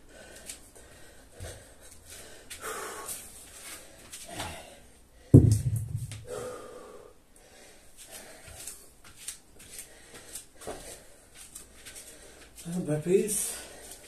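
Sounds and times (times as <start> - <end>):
heavy breathing: 0.0 - 5.4, 6.2 - 8.9, 9.7 - 12.6
weight thudding on rubber mat: 5.4 - 6.3.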